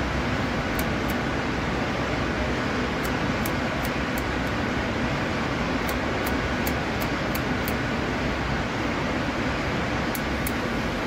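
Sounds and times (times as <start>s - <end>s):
steady background hiss: 0.0s - 11.0s
scissors snipping carpet pile: 0.7s - 1.2s, 3.0s - 4.6s, 5.8s - 7.8s.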